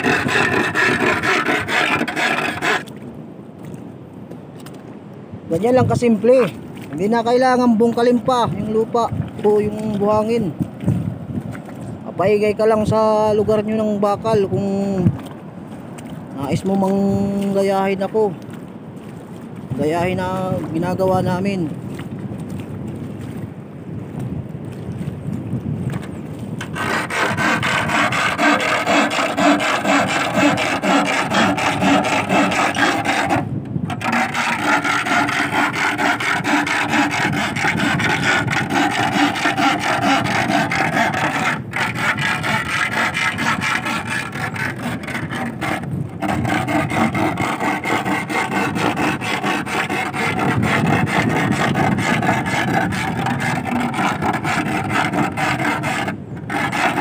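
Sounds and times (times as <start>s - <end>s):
metal rod scraping wooden stake: 0.0s - 3.0s, 26.6s - 57.0s.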